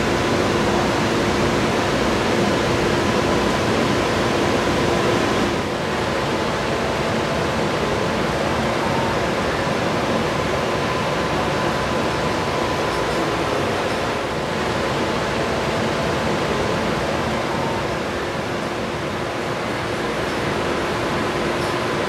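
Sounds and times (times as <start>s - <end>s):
steady rushing noise: 0.0s - 22.0s.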